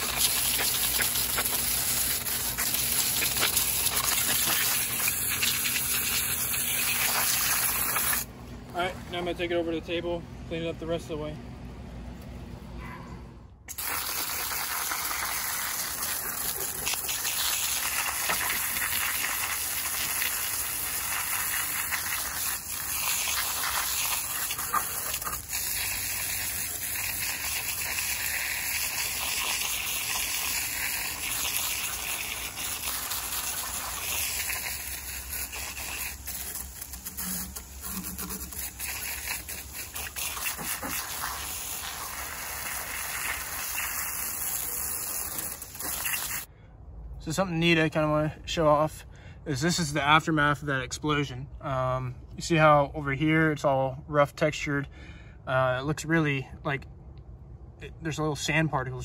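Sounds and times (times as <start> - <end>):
hose spraying water: 0.0 - 8.3, 13.7 - 46.5.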